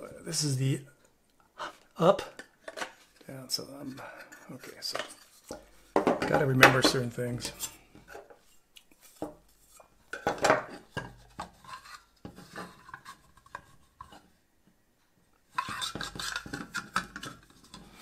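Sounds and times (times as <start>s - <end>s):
plastic and metal parts clattering: 10.1s - 13.7s, 15.6s - 18.0s
metal plate scraping on plastic: 10.1s - 14.3s, 15.5s - 18.0s.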